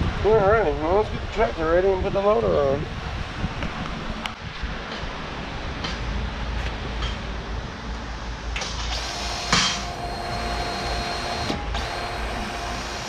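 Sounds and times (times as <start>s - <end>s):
grease gun motor whine: 8.9s - 13.0s.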